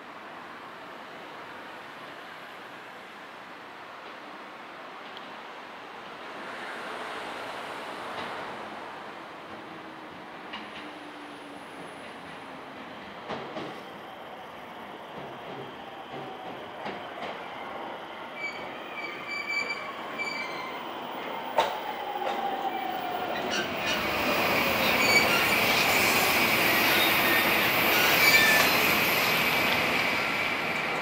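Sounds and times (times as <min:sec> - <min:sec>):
train wheel and running noise: 0:09.4 - 0:17.5, 0:21.4 - 0:31.0
high brake squeal: 0:18.4 - 0:20.8, 0:23.4 - 0:29.0.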